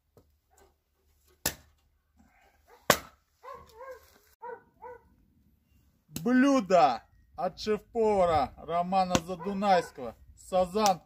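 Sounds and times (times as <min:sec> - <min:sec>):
dog barking: 0:02.5 - 0:05.1, 0:09.3 - 0:10.0.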